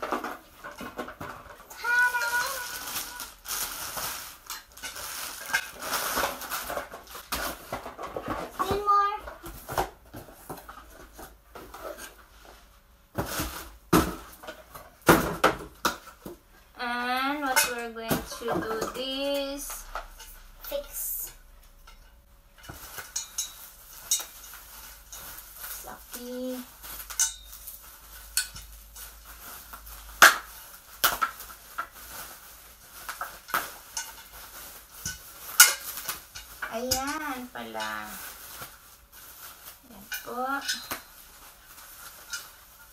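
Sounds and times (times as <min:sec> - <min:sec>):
packing material knocks and scrapes: 0:00.0 - 0:16.4.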